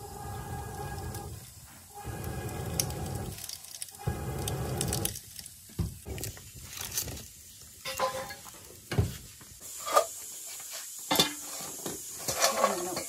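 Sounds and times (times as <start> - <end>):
vegetables sizzling in a pot: 0.0 - 13.0
metal pots knocking and clinking: 7.8 - 8.5, 11.1 - 13.0.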